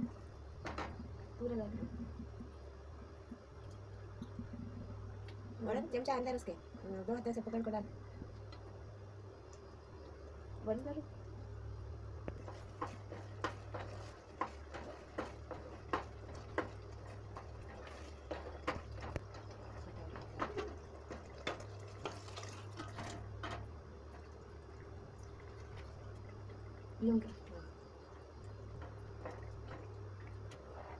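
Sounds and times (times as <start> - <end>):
low steady hum: 0.0 - 30.9
spoon scraping and knocking pot: 12.4 - 23.7.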